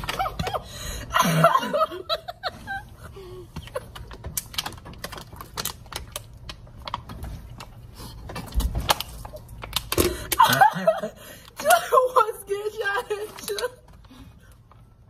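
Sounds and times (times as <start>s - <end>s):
plastic bottle crinkling: 3.6s - 10.6s.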